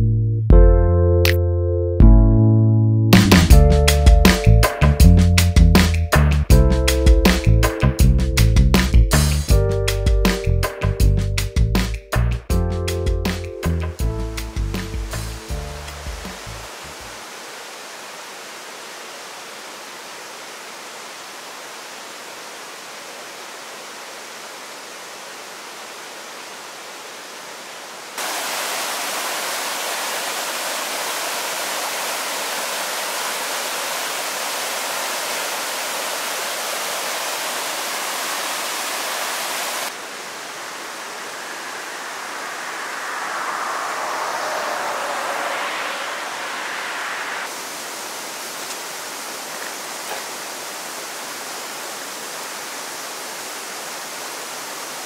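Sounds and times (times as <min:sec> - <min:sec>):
stream water rushing: 0:14.0 - 0:55.0.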